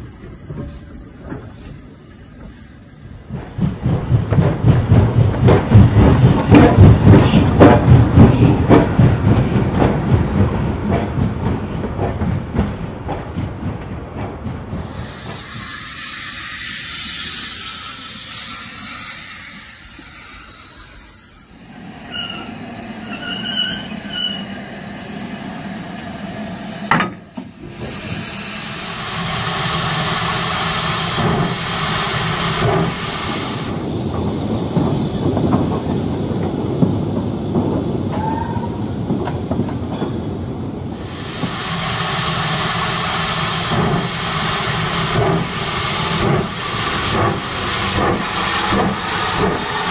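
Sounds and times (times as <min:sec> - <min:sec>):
model steam locomotive chuffing: 0:00.0 - 0:04.2, 0:14.7 - 0:26.5, 0:27.5 - 0:38.5, 0:41.0 - 0:49.9
wheels squealing on track: 0:15.4 - 0:24.6.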